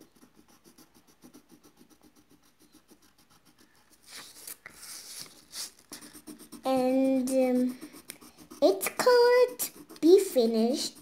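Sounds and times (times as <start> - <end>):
colored pencil shading on paper: 0.0 - 11.0
paper sliding on a table: 4.1 - 6.0.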